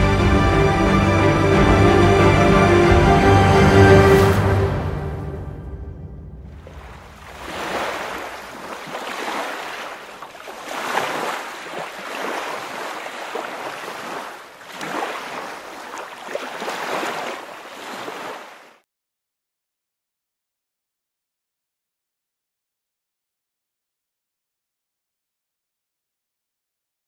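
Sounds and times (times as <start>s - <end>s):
sea waves breaking: 6.4s - 18.8s.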